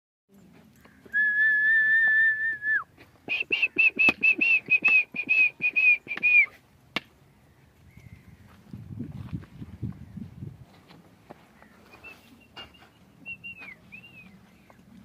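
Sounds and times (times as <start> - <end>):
person whistling: 1.1 - 6.6, 12.0 - 14.4.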